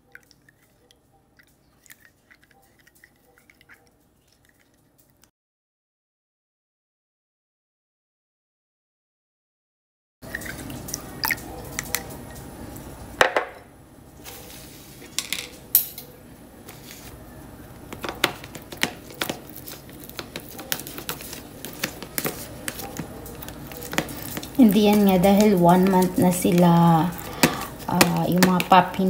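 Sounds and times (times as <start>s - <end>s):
spoon scraping against dishes: 0.0s - 4.9s, 18.0s - 29.0s.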